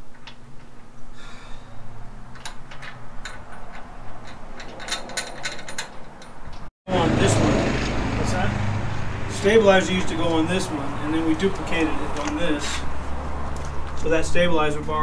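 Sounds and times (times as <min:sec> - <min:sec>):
wrench clicking on bolt: 0:02.3 - 0:06.7.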